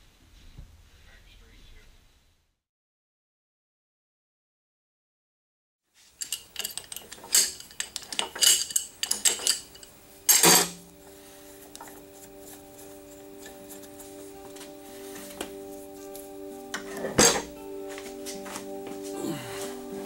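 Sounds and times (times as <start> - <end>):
metal lathe parts clanking: 6.2 - 10.9, 16.1 - 17.6
soft background music: 7.3 - 20.0.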